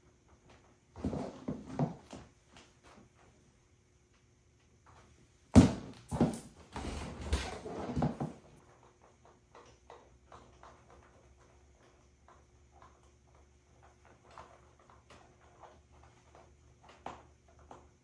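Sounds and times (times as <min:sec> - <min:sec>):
knocks and rustling: 0:05.5 - 0:08.8.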